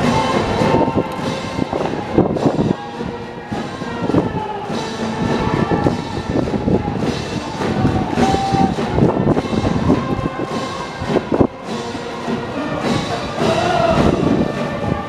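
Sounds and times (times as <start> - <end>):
brass band and drums playing: 0.0 - 15.0
people cheering: 0.0 - 15.0.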